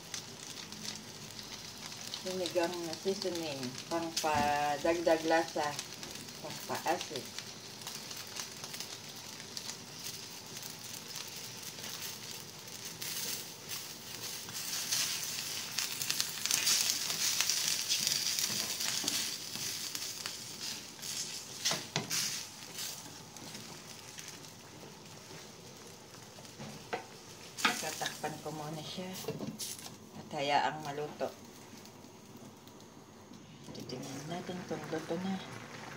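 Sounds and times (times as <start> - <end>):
broth boiling: 0.0 - 35.9
spatula stirring: 9.6 - 25.6.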